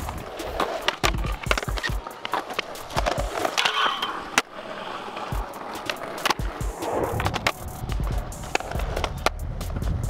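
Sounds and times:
music: 0.0 - 10.0
skateboard clacks: 0.0 - 10.0
skateboard wheels rolling on concrete: 0.0 - 10.0.

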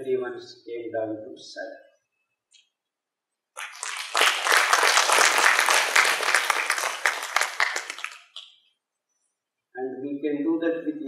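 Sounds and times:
audience applauding: 3.6 - 8.5.

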